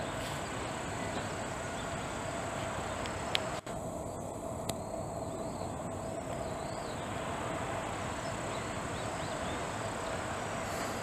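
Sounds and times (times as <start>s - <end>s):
insect drone: 0.0s - 11.0s
low rumbling haze: 0.0s - 11.0s
faint wavering chirps: 3.9s - 11.0s.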